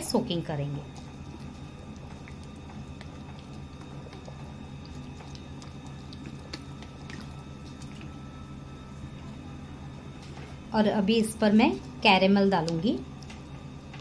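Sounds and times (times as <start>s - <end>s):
steady low hum: 0.0s - 14.0s
small wet drips: 0.4s - 8.6s.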